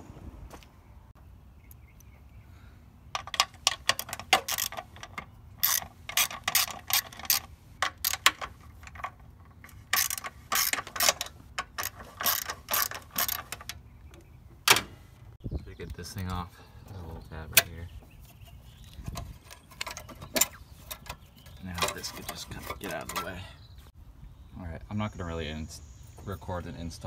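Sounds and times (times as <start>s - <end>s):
socket ratchet clicking: 3.2s - 8.5s.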